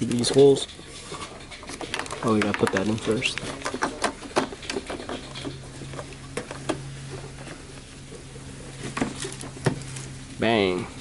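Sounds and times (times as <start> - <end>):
sharp plastic clicks and knocks: 1.5 - 6.8.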